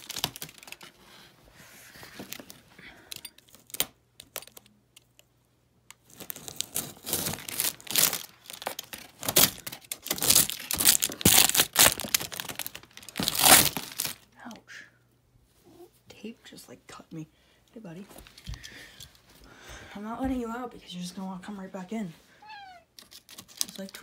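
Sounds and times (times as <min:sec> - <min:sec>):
plastic film crinkling: 0:00.0 - 0:01.3, 0:01.9 - 0:02.7, 0:06.0 - 0:14.3, 0:23.0 - 0:24.0
knife slicing through plastic wrap: 0:06.2 - 0:12.6.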